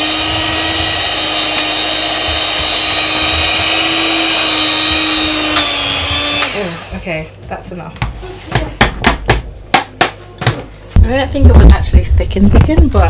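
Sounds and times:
electric mixer running: 0:00.0 - 0:07.3.

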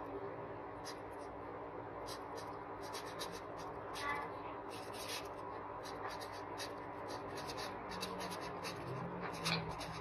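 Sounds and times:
marker pen writing on paper: 0:02.1 - 0:03.7, 0:04.7 - 0:10.0.

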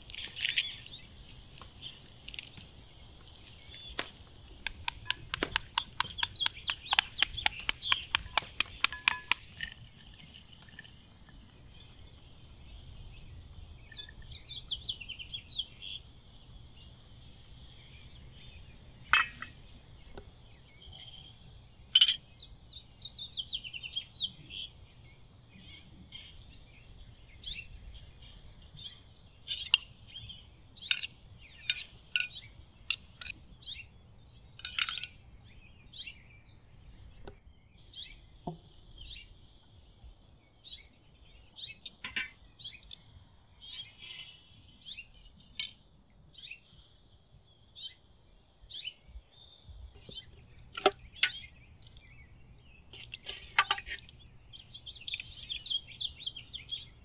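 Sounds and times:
small birds chirping: 0:00.0 - 0:57.0
spoon clinking on dishes: 0:22.0 - 0:22.2, 0:30.9 - 0:33.4, 0:34.6 - 0:35.2.

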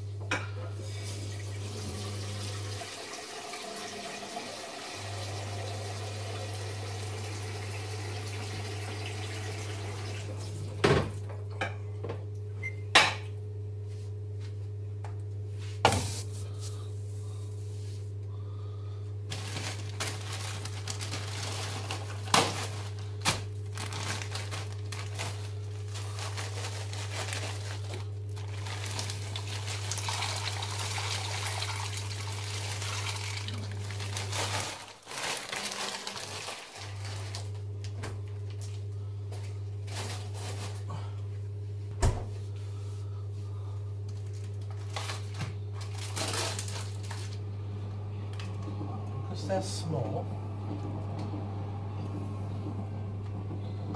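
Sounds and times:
steady low hum: 0:10.2 - 0:30.6, 0:37.0 - 0:53.9.

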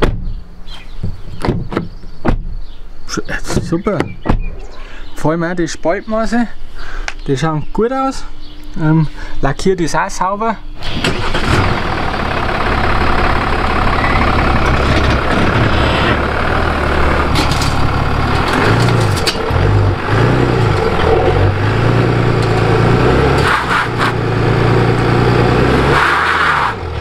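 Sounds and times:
diesel engine running: 0:03.2 - 0:07.1, 0:10.6 - 0:27.0.

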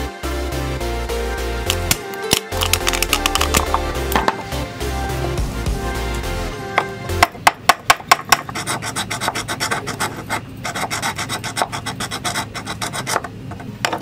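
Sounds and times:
tool scraping plastic: 0:08.2 - 0:14.0.

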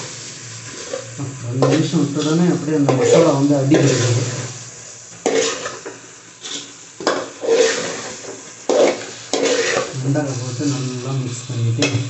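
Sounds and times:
faint sizzle of frying: 0:00.0 - 0:12.0
metal spoon scraping a pot: 0:05.2 - 0:05.8, 0:06.4 - 0:08.1, 0:08.7 - 0:10.0.

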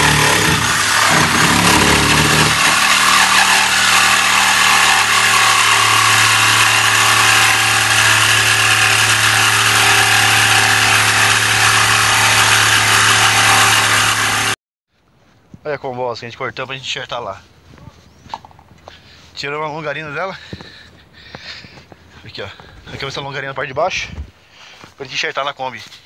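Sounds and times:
power saw cutting metal: 0:00.0 - 0:14.6.

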